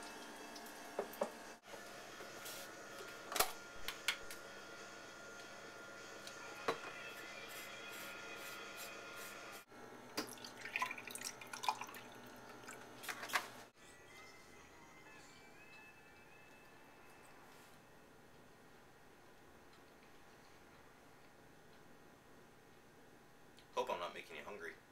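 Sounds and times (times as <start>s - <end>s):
milk pouring into a glass: 10.2s - 12.9s.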